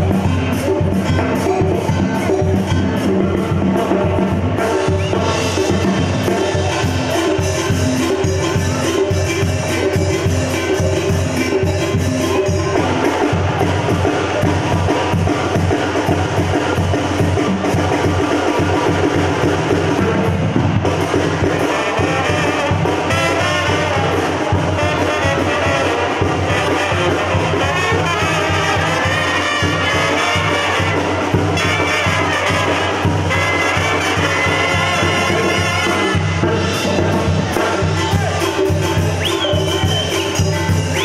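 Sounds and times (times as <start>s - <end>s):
drums: 0.0s - 41.0s
trumpets and trombones playing: 20.9s - 41.0s
sousaphone bass line: 34.2s - 41.0s.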